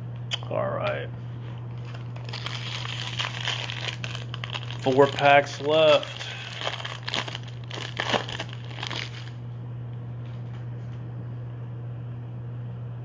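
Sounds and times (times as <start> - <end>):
steady low hum: 0.0 - 13.0
plastic wrapper crinkling: 1.7 - 9.4.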